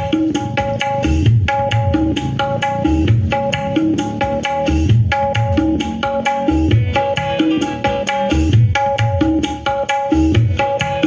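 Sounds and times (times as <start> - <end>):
hand drum beats: 0.0 - 11.0
loud music through speaker: 0.0 - 11.0.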